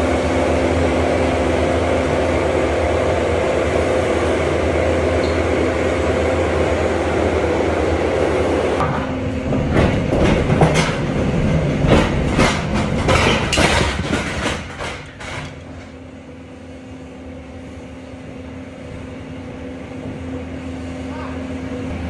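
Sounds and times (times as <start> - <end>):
pallet jack rattling over metal floor: 9.5 - 15.6.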